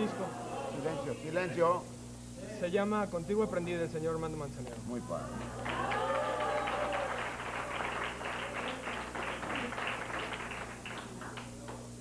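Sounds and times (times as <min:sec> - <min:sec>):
audience clapping: 0:05.4 - 0:11.9.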